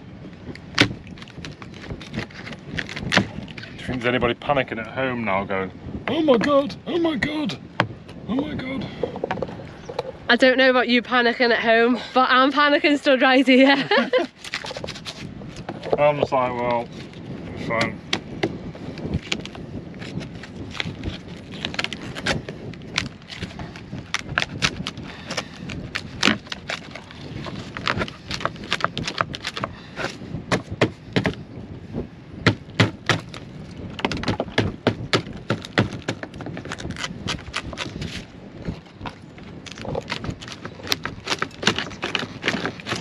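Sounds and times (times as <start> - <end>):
wood cracking and snapping: 0.5 - 3.8, 18.1 - 31.4, 32.4 - 43.0
scraper scraping wood: 23.2 - 31.4, 39.7 - 43.0.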